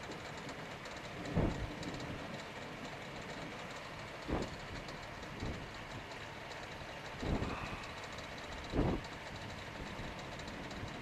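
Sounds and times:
wind rushing over microphone: 8.7 - 9.0.

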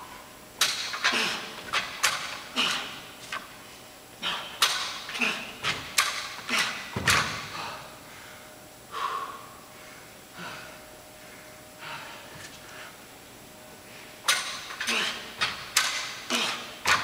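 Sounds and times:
dumbbells thudding on mat: 6.9 - 7.6.

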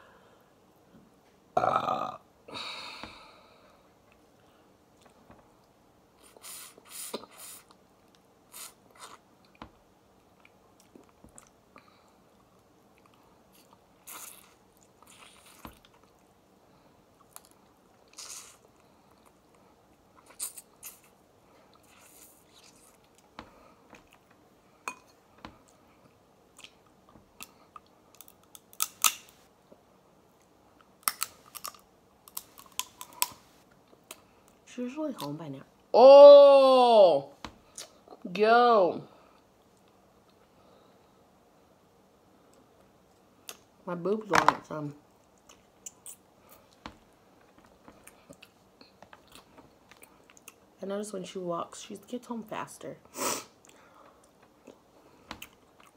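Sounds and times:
person chewing: 12.4 - 16.3, 17.2 - 23.3, 30.8 - 34.6, 47.9 - 50.7
crab shell crackling: 28.1 - 29.4, 31.0 - 33.5.

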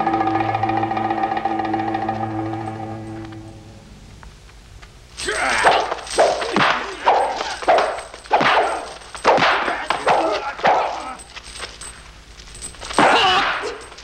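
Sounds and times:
fighters yelling and grunting: 5.2 - 11.3, 13.0 - 13.9
punch and kick hits: 5.6 - 11.0.

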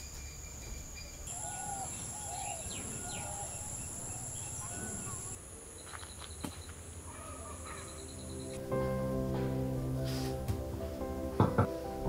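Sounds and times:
bird calls chirping: 0.0 - 8.6
insects droning: 0.0 - 8.8.

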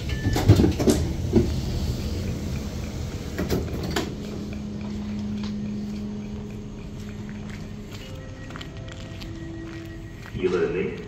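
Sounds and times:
train door opening: 0.0 - 4.5
knocks and clatter: 0.0 - 7.6
passenger stepping off: 0.0 - 10.7
steady low hum: 0.0 - 11.0.

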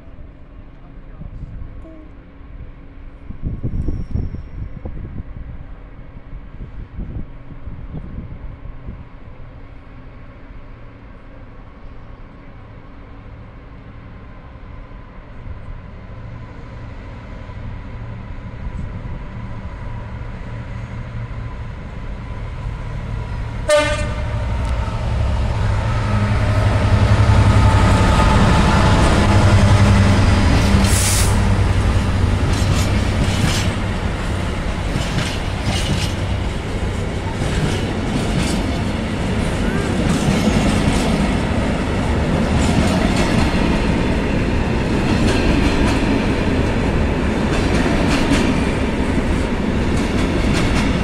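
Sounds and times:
diesel locomotive engine drone: 0.0 - 51.0
train horn toot: 23.6 - 24.8.

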